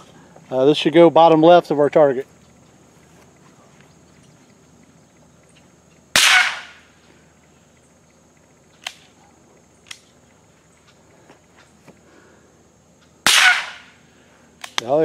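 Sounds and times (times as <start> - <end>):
rifle gunshot crack: 6.1 - 6.8, 13.2 - 13.9
faint sharp cracks: 6.1 - 11.0, 14.6 - 15.0.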